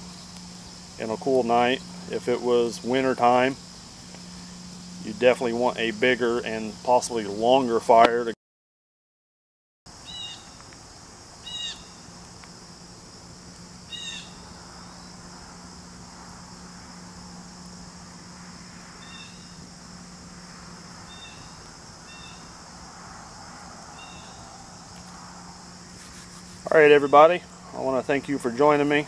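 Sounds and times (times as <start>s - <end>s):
faint low hum: 0.0s - 8.3s, 10.0s - 29.0s
insects droning: 0.0s - 8.4s, 9.9s - 29.0s
chirped animal call: 11.4s - 12.0s, 13.9s - 14.5s, 21.0s - 22.5s, 23.9s - 24.8s.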